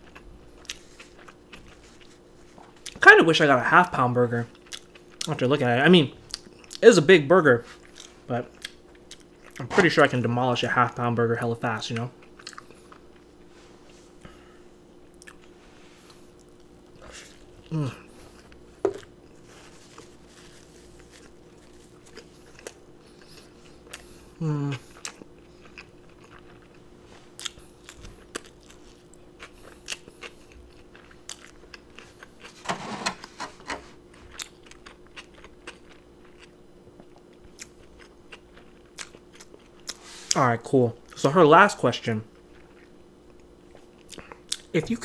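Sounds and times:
person chewing: 0.0s - 3.0s, 4.5s - 5.4s, 6.2s - 6.8s, 7.7s - 10.1s, 11.9s - 13.4s, 14.1s - 40.4s, 42.3s - 44.7s.

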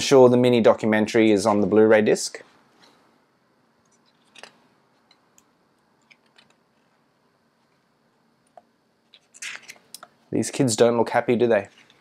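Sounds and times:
book pages turning: 9.1s - 10.0s.

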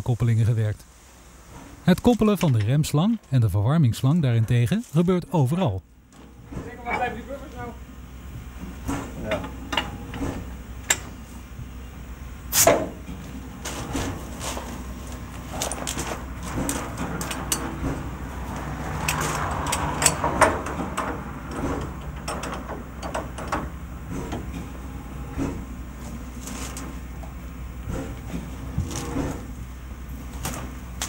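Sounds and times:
steady low hum: 0.0s - 31.0s
metal hose couplings clanking: 14.4s - 17.9s, 19.0s - 24.7s.

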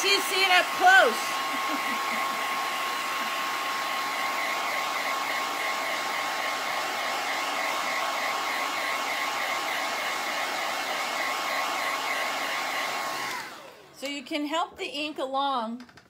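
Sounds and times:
hair dryer blowing with whine: 0.0s - 14.2s.

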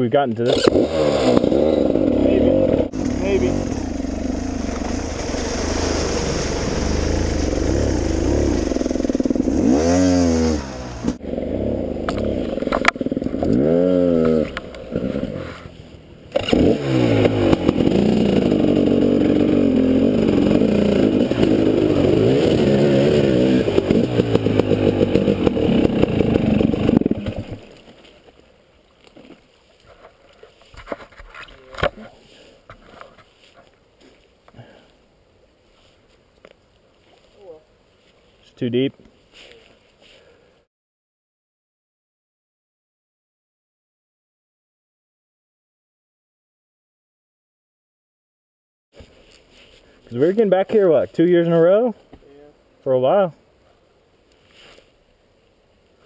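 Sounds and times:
dirt bike engines revving: 0.4s - 27.6s.

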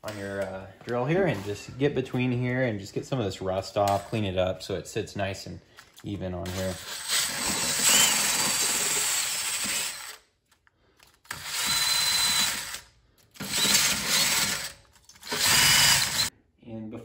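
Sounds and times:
drill wire wheel scrubbing metal: 6.5s - 10.2s, 13.4s - 16.3s.

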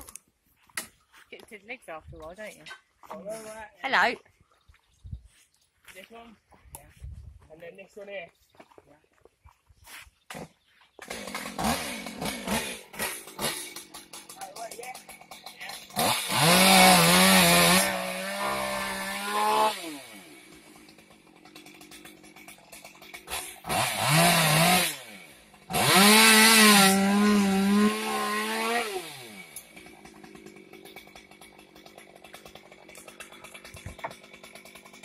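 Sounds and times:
chainsaw revving and idling: 11.0s - 35.0s.

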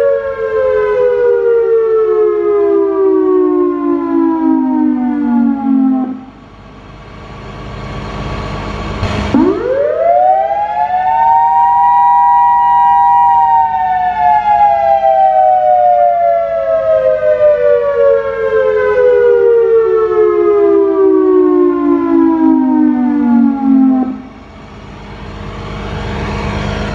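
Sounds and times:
electronic warning siren: 0.0s - 6.6s, 8.5s - 26.9s.

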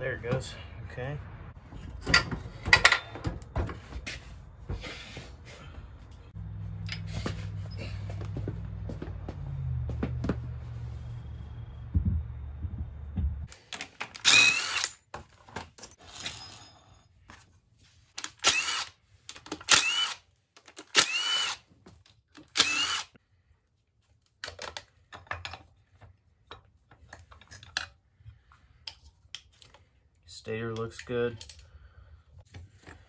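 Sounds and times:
impact driver whirring: 14.2s - 15.0s, 18.4s - 18.9s, 19.6s - 20.2s, 20.9s - 21.6s, 22.5s - 23.1s.

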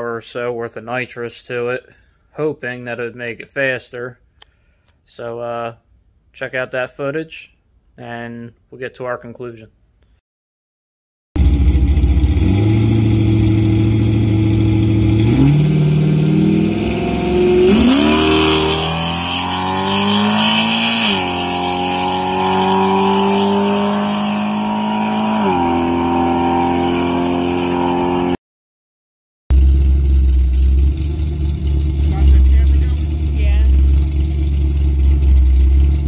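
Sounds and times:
engine at full throttle upshifting: 11.4s - 28.4s, 29.5s - 36.0s.

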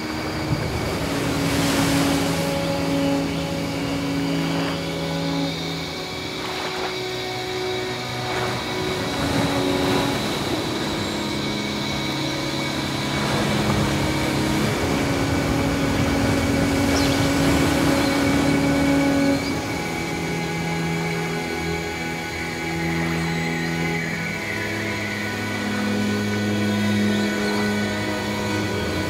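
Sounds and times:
ambient pad chords: 0.0s - 29.0s
sea rushing: 0.0s - 29.0s.

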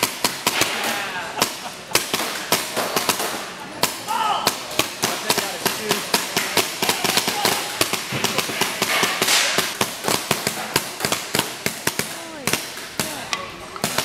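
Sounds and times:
paintball guns firing: 0.0s - 14.0s.

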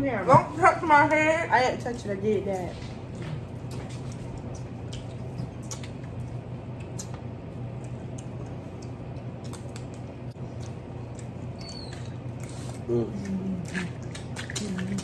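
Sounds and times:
steady low hum: 0.0s - 15.0s
eating mouth sounds: 3.7s - 15.0s.

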